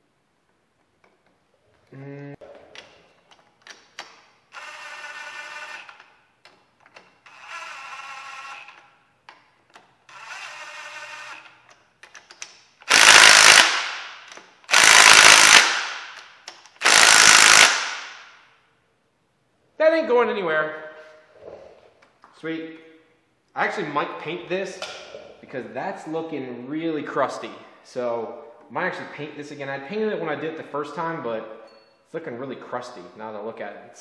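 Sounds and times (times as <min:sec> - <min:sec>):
harsh driver bursts: 0:12.9 - 0:13.8, 0:14.7 - 0:15.9, 0:16.8 - 0:17.9.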